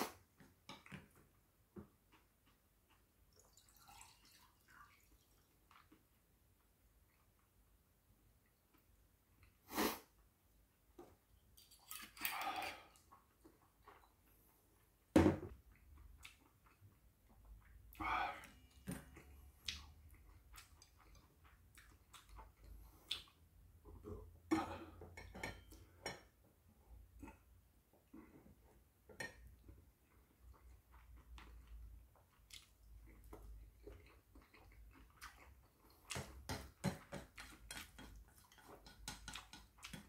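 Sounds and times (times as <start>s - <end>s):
chewing: 2.1s - 4.3s, 15.7s - 18.0s, 18.7s - 23.4s, 29.6s - 36.4s, 37.0s - 40.0s.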